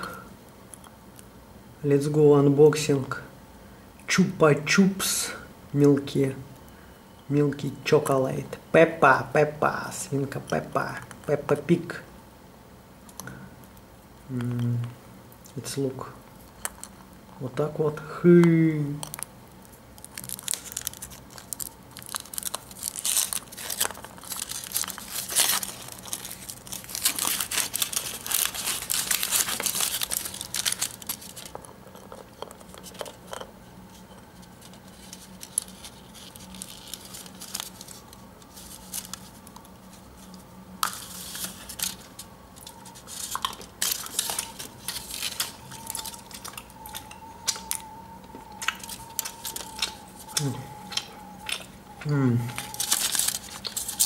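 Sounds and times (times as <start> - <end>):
foil wrapper crinkling and tearing: 19.0 - 33.4, 34.4 - 54.0.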